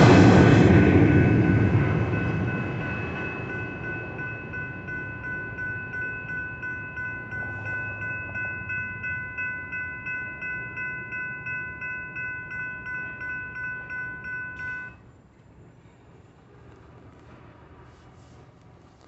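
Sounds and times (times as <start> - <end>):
railroad crossing bell ringing: 0.0 - 15.0
low train rumble: 0.0 - 19.0.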